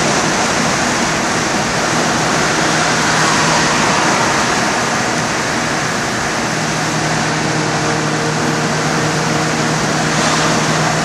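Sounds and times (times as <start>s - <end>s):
car engine drone: 0.0s - 11.0s
wind and tyre noise: 0.0s - 11.0s.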